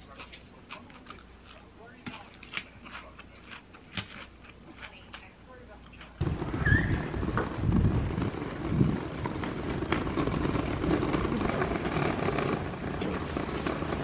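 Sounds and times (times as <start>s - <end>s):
wind buffeting microphone: 6.2s - 14.0s.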